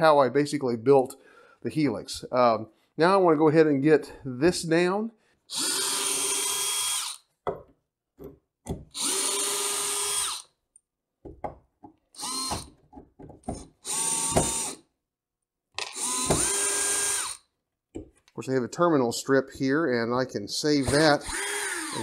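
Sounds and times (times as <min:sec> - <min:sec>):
drill clicks: 0:05.5 - 0:07.2, 0:08.9 - 0:10.5, 0:12.2 - 0:12.8, 0:13.5 - 0:14.8, 0:15.8 - 0:17.4, 0:20.8 - 0:22.0
electric drill whining: 0:05.5 - 0:07.2, 0:08.9 - 0:10.5, 0:12.2 - 0:12.8, 0:13.8 - 0:14.8, 0:15.8 - 0:17.4, 0:20.8 - 0:22.0.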